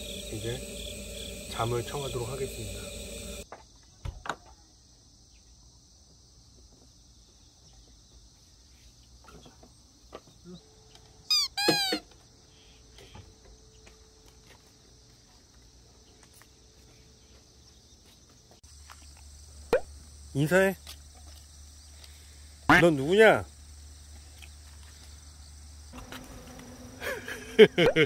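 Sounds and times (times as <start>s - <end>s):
loud high squeal: 0.0s - 3.4s, 11.3s - 12.0s
high-pitched insect chorus: 0.0s - 3.9s, 18.6s - 27.8s.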